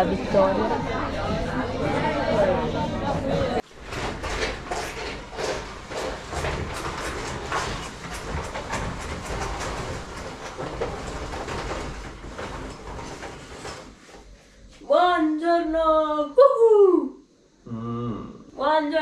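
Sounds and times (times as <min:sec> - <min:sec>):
roller shutter rattling up: 0:03.6 - 0:14.4.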